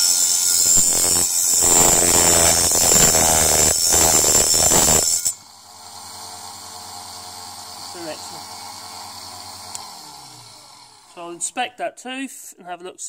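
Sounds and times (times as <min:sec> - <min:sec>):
grinder motor humming: 0:00.0 - 0:05.4
saw blade grinding with whine: 0:00.0 - 0:11.2.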